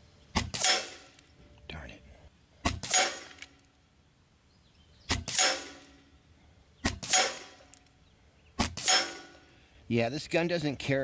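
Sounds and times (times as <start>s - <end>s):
air rifle shots: 0.4s - 1.2s, 2.6s - 3.6s, 5.1s - 6.0s, 6.8s - 7.8s, 8.6s - 9.4s.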